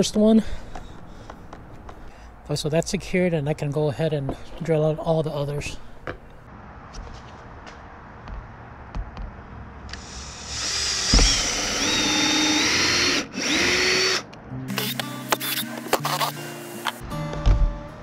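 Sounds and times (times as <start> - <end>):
cordless drill boring through plastic: 9.9 - 14.2
background music: 13.5 - 18.0.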